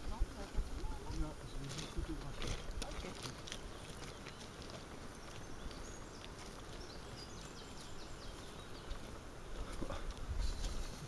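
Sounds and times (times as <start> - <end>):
outdoor background noise: 0.0 - 11.0
faint high bird chirps: 3.7 - 9.1.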